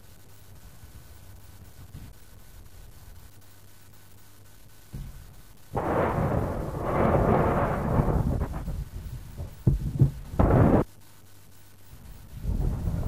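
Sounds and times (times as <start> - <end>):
thump: 4.9 - 6.1, 9.4 - 10.8.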